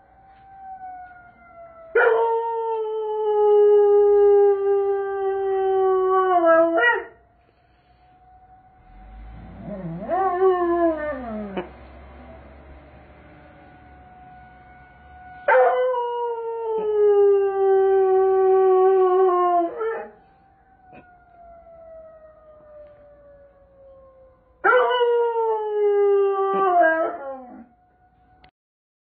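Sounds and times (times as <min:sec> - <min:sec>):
distant siren tone: 0:00.0 - 0:28.5
dog howling: 0:09.2 - 0:11.7.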